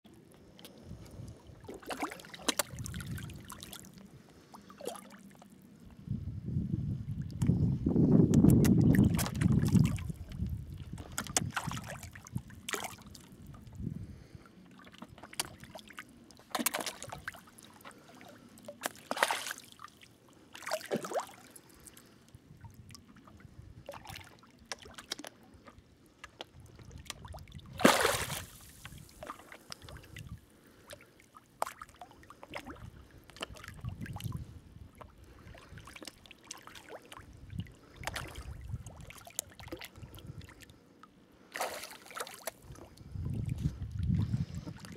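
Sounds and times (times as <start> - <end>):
fish splashing at water surface: 16.4 - 21.8, 27.7 - 30.0, 41.5 - 42.6.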